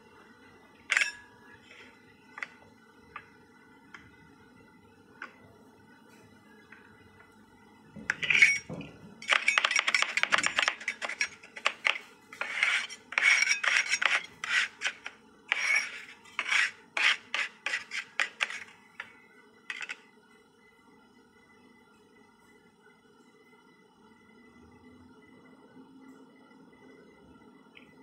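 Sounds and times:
steel spatulas chopping on metal plate: 0:09.2 - 0:18.7.

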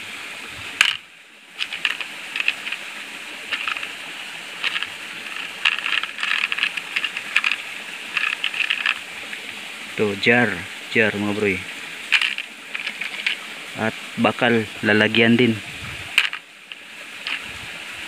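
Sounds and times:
stones and metal pieces clinking: 0:00.8 - 0:01.0, 0:01.6 - 0:02.9, 0:03.5 - 0:03.9, 0:04.6 - 0:09.1, 0:12.0 - 0:13.5, 0:16.1 - 0:17.5.

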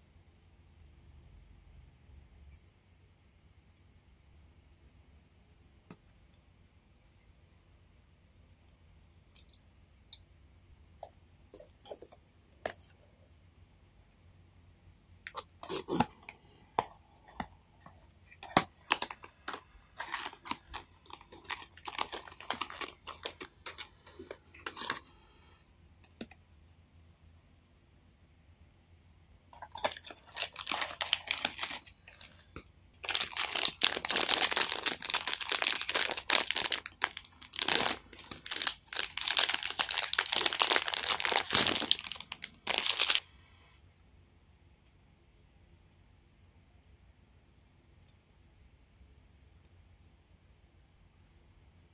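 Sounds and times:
plastic wrapper crinkling and tearing: 0:15.3 - 0:16.2, 0:18.3 - 0:25.1, 0:29.6 - 0:43.2.

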